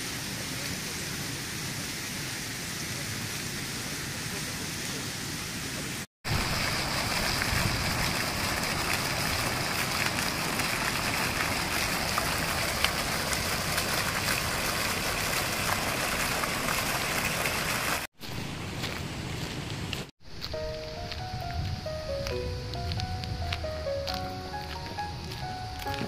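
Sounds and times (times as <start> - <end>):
fountain splashing into basin: 0.0 - 18.1
water drips: 6.3 - 18.1.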